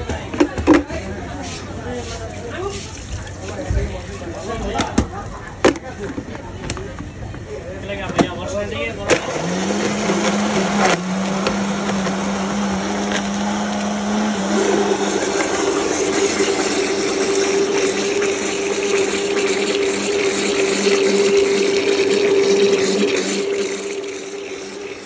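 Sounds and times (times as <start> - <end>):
blender motor running: 9.1 - 25.0.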